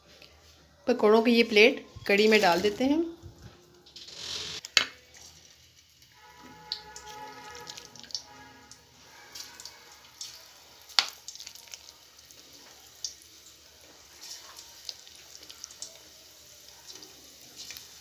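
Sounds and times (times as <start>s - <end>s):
food deep-frying in oil: 3.8s - 18.0s.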